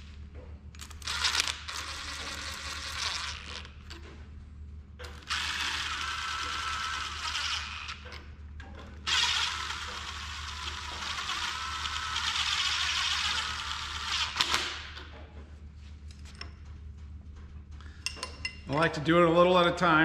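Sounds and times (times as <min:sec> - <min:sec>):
impact driver running: 0:00.8 - 0:03.5, 0:05.2 - 0:08.1, 0:09.0 - 0:15.1.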